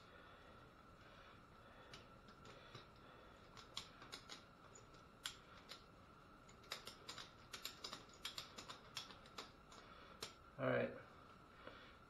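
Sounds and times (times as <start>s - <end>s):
faint steady hum: 0.0s - 12.0s
ratchet strap buckle clicking: 3.5s - 5.8s, 6.5s - 10.4s.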